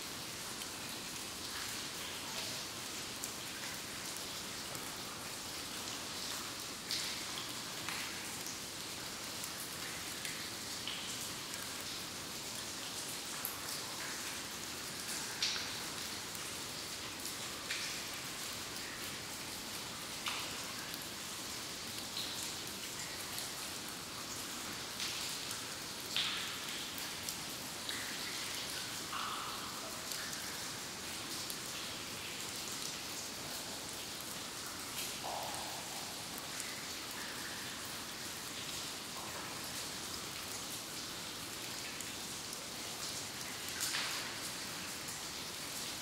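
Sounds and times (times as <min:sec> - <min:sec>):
steady hiss: 0:00.0 - 0:46.0
water drops falling: 0:27.9 - 0:30.8, 0:34.6 - 0:37.8.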